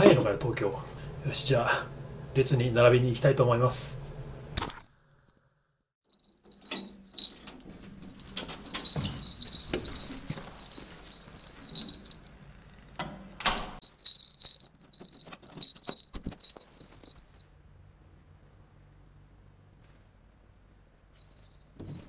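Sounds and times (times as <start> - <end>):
keys jangling against door: 6.1 - 17.4
door latch clicking: 13.0 - 13.8.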